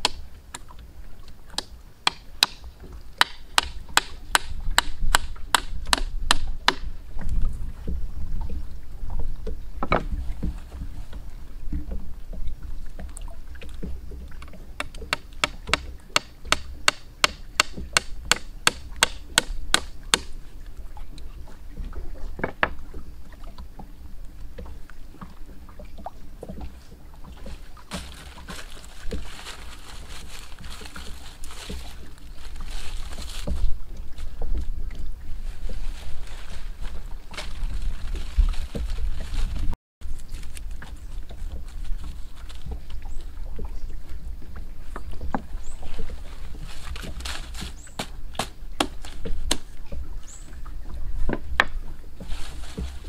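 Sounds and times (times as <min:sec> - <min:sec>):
soft wood scraping and crumbling: 0:07.2 - 0:14.8, 0:26.4 - 0:43.5, 0:44.8 - 0:53.0
knife chopping into wood: 0:48.0 - 0:49.7.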